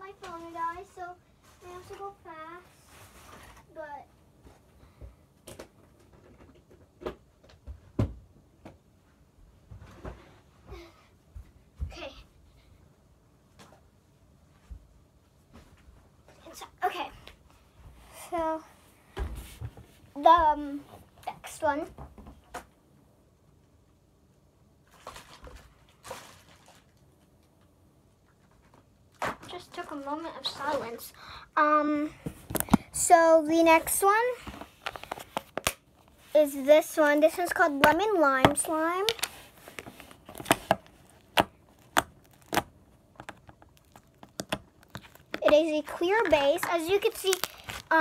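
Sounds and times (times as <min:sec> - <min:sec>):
objects being handled: 0:32.2 - 0:48.0.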